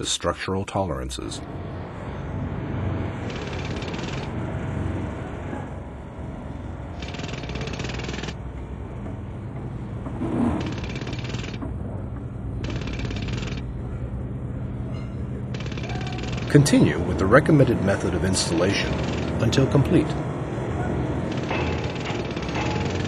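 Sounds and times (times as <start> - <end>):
low machine rumble: 8.4 - 23.0
pile hammer hammering: 21.3 - 23.0.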